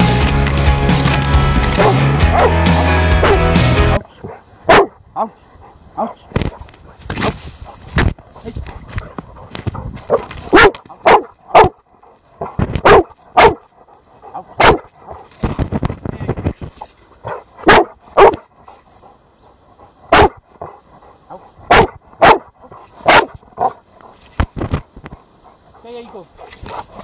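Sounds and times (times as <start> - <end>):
dog barking: 1.8 - 2.6, 3.2 - 3.5, 4.2 - 5.4, 10.1 - 11.8, 12.4 - 13.7, 14.3 - 14.9, 17.2 - 18.4, 20.1 - 23.8.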